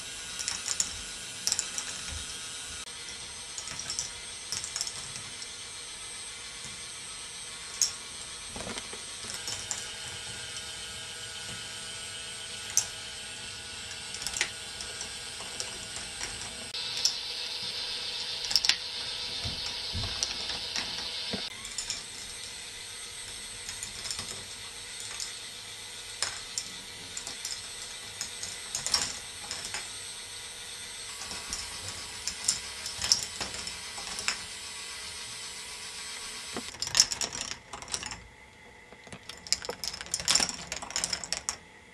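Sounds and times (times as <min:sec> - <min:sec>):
motor hum: 0:00.0 - 0:41.9
balls clattering on plastic tracks: 0:00.3 - 0:02.4, 0:03.1 - 0:05.6, 0:07.6 - 0:11.6, 0:12.6 - 0:17.2, 0:18.4 - 0:22.6, 0:23.2 - 0:30.0, 0:31.1 - 0:34.6, 0:36.6 - 0:41.7.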